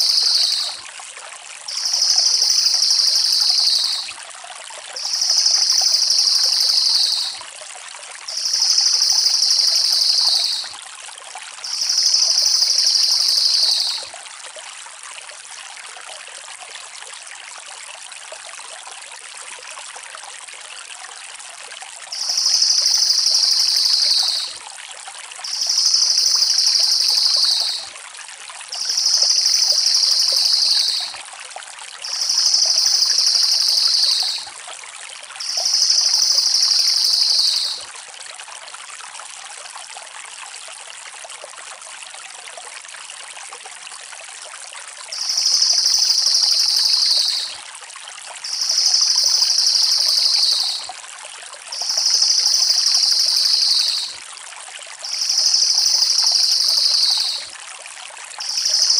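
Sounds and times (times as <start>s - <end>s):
songbird trilling: 0.0s - 0.8s, 1.7s - 4.1s, 5.0s - 7.4s, 8.4s - 10.7s, 11.7s - 14.0s, 22.2s - 24.5s, 25.5s - 27.8s, 28.8s - 31.2s, 32.1s - 34.4s, 35.4s - 37.8s, 45.2s - 47.6s, 48.5s - 50.8s, 51.8s - 54.1s, 55.1s - 57.4s, 58.4s - 58.9s.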